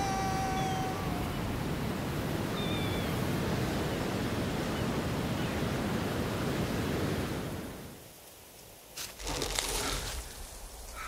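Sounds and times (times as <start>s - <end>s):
ocean surf washing: 0.0s - 8.0s
wind: 0.0s - 11.0s.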